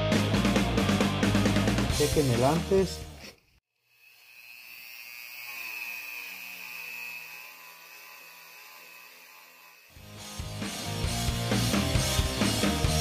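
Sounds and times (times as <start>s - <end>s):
rotary tool wire brush whine: 3.2s - 13.0s.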